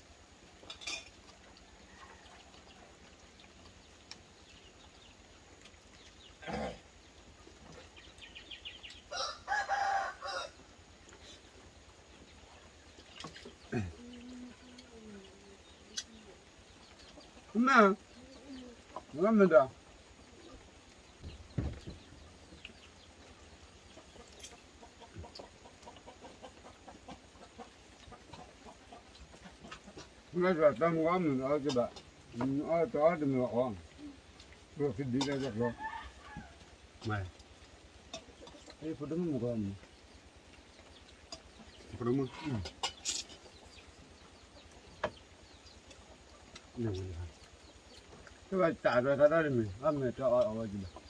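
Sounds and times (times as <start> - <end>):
spoons clinking on plates: 0.7 - 1.2, 42.6 - 43.4
rooster crowing: 9.1 - 10.6, 35.6 - 36.6
faint short clucking calls: 13.1 - 19.2
dull thump: 21.2 - 22.0.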